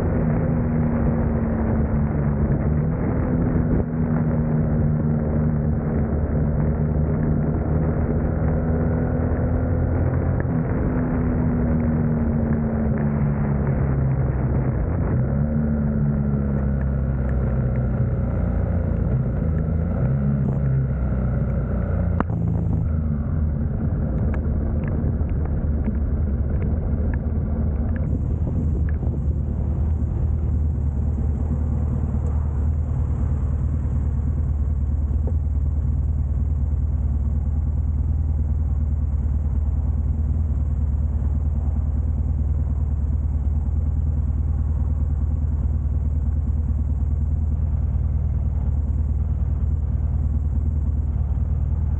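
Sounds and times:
motorcycle engine idling: 0:15.8 - 0:51.9.

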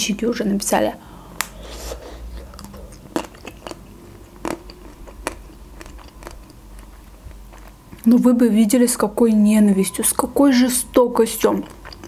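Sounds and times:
chewing ice cream bar: 0:02.3 - 0:08.1, 0:11.3 - 0:12.0
chocolate shell crunching: 0:02.4 - 0:08.1.

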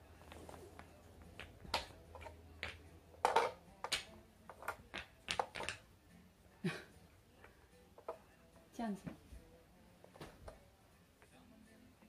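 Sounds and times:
wooden blocks clacking: 0:00.2 - 0:05.9.

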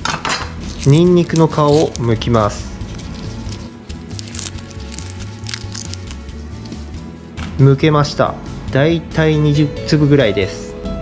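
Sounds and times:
garlic skin crinkling: 0:00.5 - 0:06.4.

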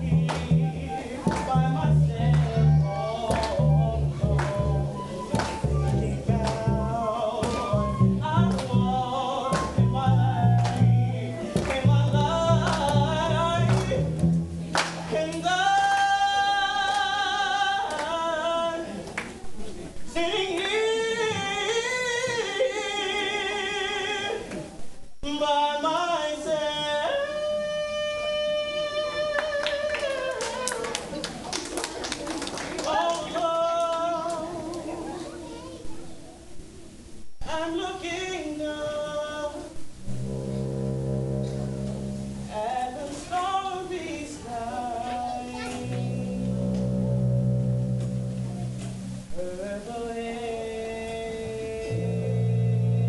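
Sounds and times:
person singing with vibrato: 0:00.0 - 0:14.3, 0:15.1 - 0:19.0, 0:37.4 - 0:53.0
plucked double bass: 0:00.0 - 0:15.6, 0:39.9 - 0:42.9, 0:45.6 - 0:49.6, 0:50.8 - 0:53.0.

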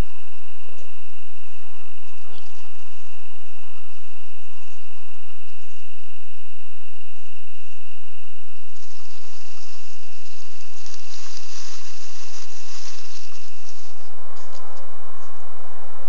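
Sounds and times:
night insects trilling: 0:00.0 - 0:16.0
rustling hiss with crackles: 0:08.6 - 0:15.7.

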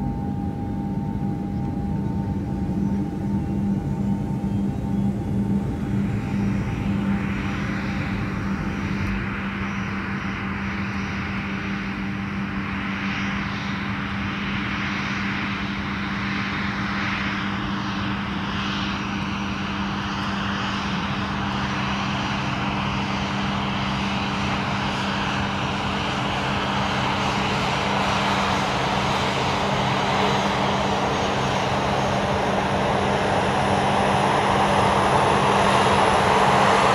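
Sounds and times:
constant low hum: 0:00.0 - 0:36.9
jet engine and airflow rush: 0:00.0 - 0:36.9.

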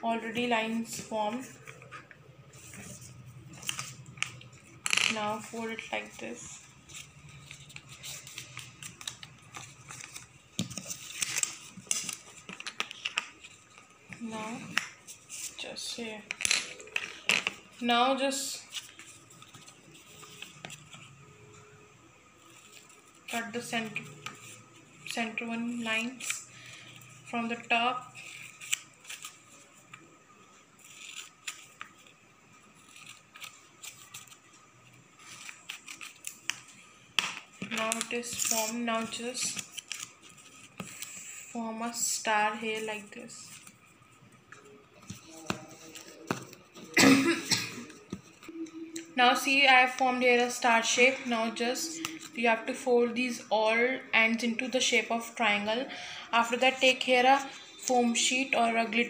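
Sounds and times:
paper folding and rustling: 0:00.4 - 0:17.7, 0:18.6 - 0:21.1, 0:28.2 - 0:30.1, 0:30.8 - 0:43.8, 0:44.9 - 0:47.0.

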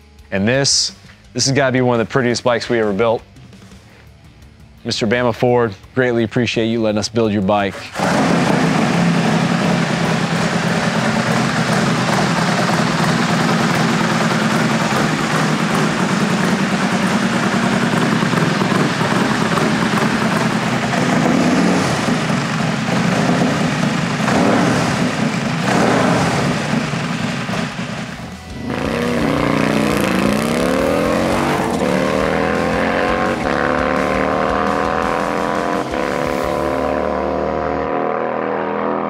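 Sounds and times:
motorcycle engine revving and accelerating: 0:07.9 - 0:39.0.

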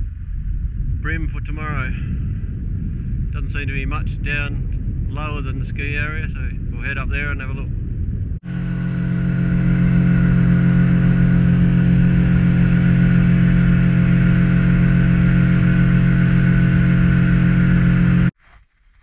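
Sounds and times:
outboard motor droning: 0:08.4 - 0:18.4.

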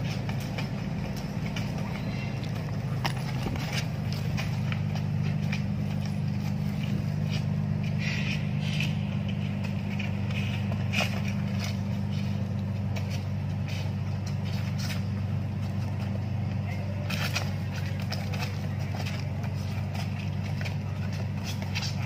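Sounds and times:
low machine hum: 0:00.0 - 0:22.0
shoes scuffing on paving: 0:00.0 - 0:22.0.

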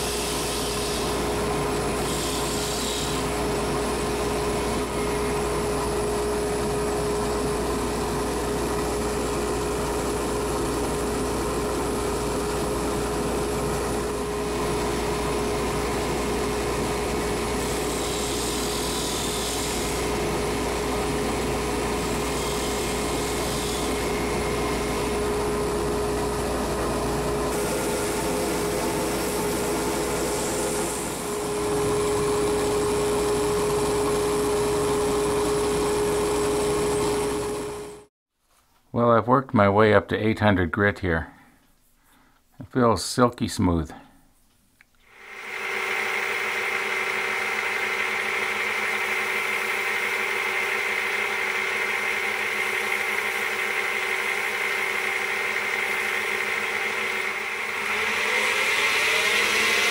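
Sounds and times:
wood lathe motor whine: 0:00.0 - 0:38.1, 0:45.1 - 0:59.9
sandpaper hissing: 0:02.0 - 0:03.2, 0:17.7 - 0:20.0.

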